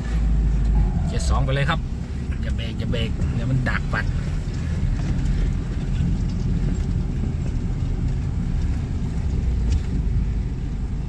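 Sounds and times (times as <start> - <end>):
truck engine low rumble: 0.0 - 11.0.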